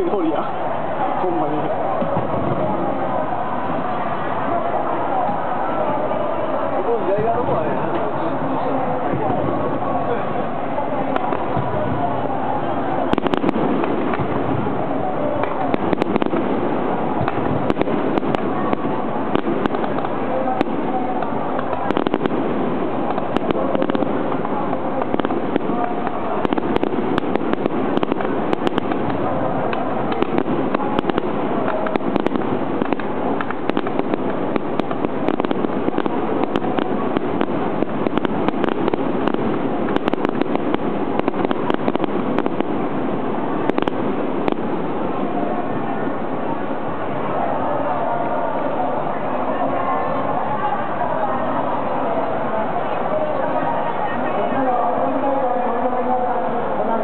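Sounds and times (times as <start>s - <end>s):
crowd chatter: 0.0s - 57.0s
firework shells bursting: 13.1s - 14.6s, 15.4s - 45.2s.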